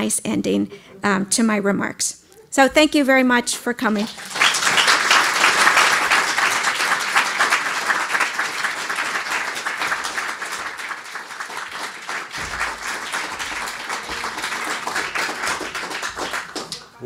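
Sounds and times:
audience applauding: 4.0 - 17.0.

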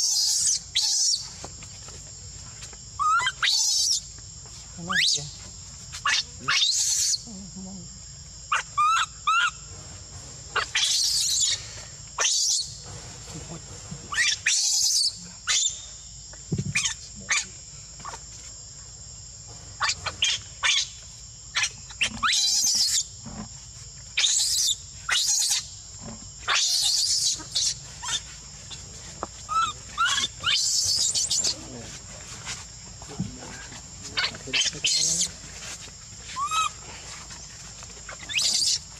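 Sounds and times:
infant monkey screeching: 0.0 - 1.4, 3.0 - 4.1, 4.8 - 7.4, 8.5 - 9.7, 10.5 - 12.8, 14.1 - 15.9, 16.7 - 18.2, 19.8 - 23.2, 24.2 - 25.8, 26.4 - 31.7, 33.6 - 37.2, 38.1 - 38.9.

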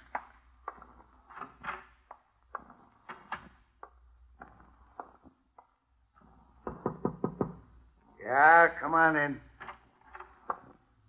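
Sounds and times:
knocking on a door: 6.6 - 7.7.

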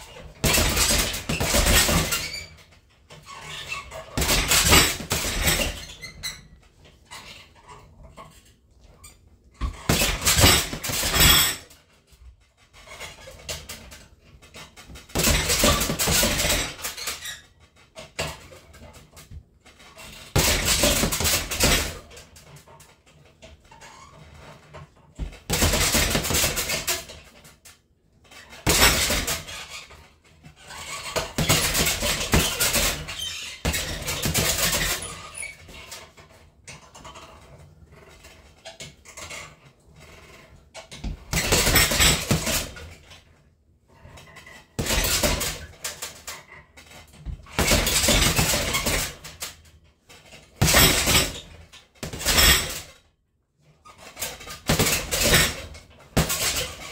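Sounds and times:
gloves punching heavy bag: 0.0 - 2.6, 3.4 - 6.0, 9.6 - 11.6, 14.9 - 17.0, 20.2 - 22.1, 25.2 - 27.2, 28.6 - 29.6, 30.9 - 35.3, 41.0 - 42.9, 44.8 - 46.2, 47.3 - 49.5, 50.6 - 52.9, 54.2 - 56.9.

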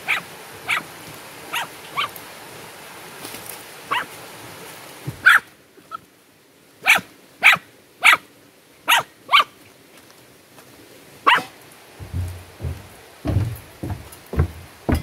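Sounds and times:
dog barking: 0.0 - 0.9, 1.5 - 2.1, 3.9 - 4.1, 5.2 - 5.5, 6.8 - 8.2, 8.9 - 9.5, 11.2 - 11.6.

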